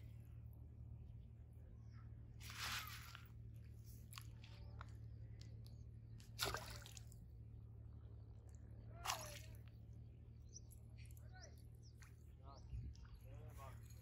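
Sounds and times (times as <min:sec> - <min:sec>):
low steady hum: 0:00.0 - 0:14.0
soft splashes in water: 0:06.2 - 0:07.3, 0:08.5 - 0:09.8.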